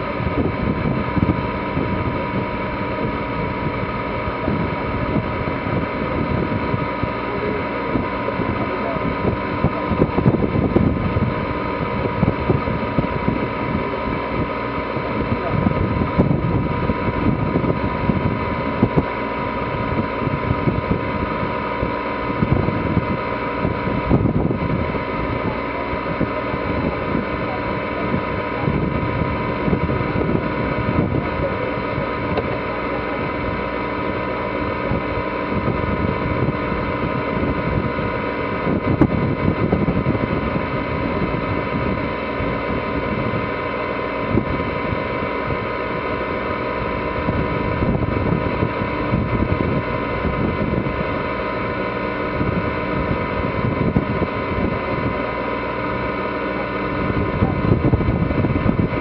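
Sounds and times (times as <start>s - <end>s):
diesel boat engine running: 0.0s - 59.0s
wind rumbling on microphone: 0.0s - 59.0s.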